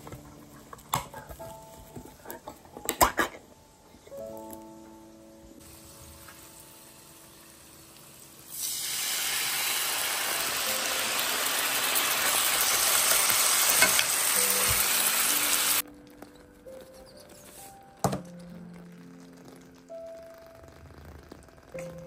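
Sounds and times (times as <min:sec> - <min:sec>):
faint background music: 0:00.0 - 0:22.0
sausages sizzling in a pan: 0:05.6 - 0:15.8.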